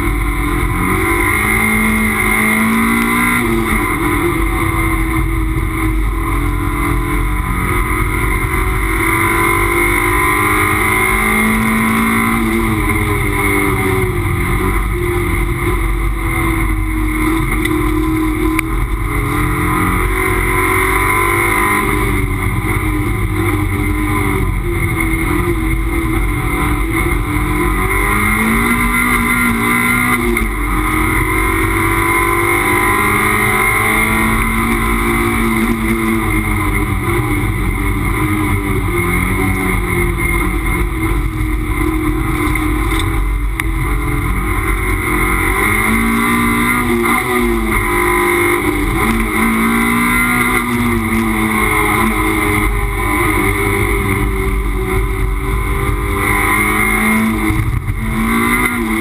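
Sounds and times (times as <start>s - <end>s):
race car engine revving: 0.0s - 59.0s
road noise: 0.0s - 59.0s.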